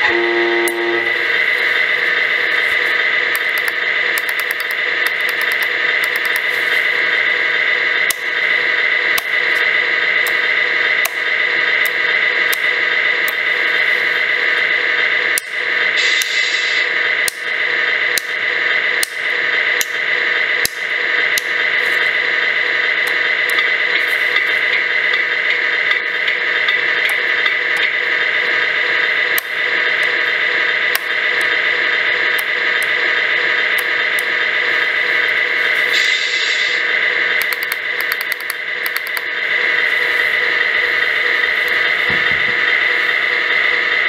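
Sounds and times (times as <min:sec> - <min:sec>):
simulated truck engine idling: 0:00.0 - 0:44.0
sharp clicks: 0:03.3 - 0:06.5, 0:37.4 - 0:39.3.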